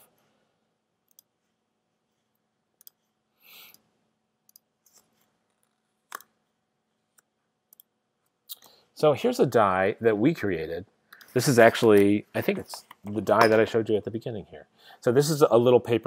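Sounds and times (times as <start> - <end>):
computer mouse clicks: 1.1 - 1.3, 2.8 - 3.0, 4.5 - 6.4.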